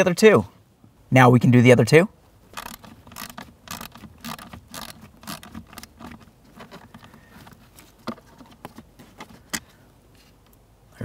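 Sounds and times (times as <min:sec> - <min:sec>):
screwdriver clicks and scrapes: 0:02.6 - 0:07.6.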